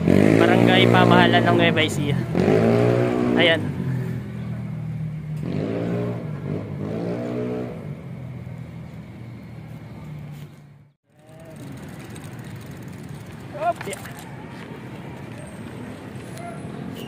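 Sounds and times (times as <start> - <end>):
vehicle engine revving and humming: 0.0 - 13.5.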